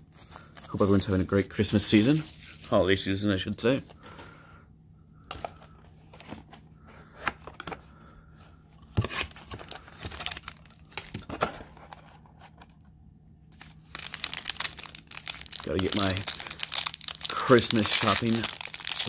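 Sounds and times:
cardboard and foil rustling: 0:00.0 - 0:03.0, 0:09.0 - 0:12.6, 0:13.6 - 0:19.0.

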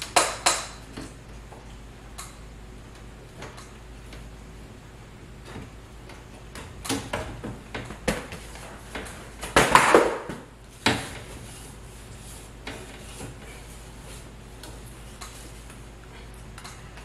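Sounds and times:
vent grille clicks and knocks: 0:00.0 - 0:04.5, 0:05.3 - 0:11.4.

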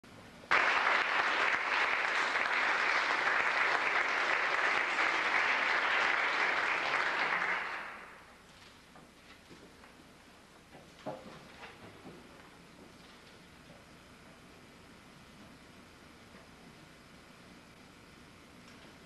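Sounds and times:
audience applauding: 0:00.5 - 0:08.3.

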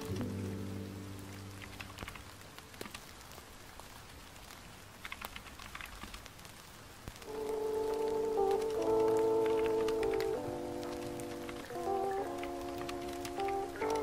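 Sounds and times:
calm music: 0:00.0 - 0:02.8, 0:07.2 - 0:14.0
soft rain-like hiss: 0:00.0 - 0:14.0.

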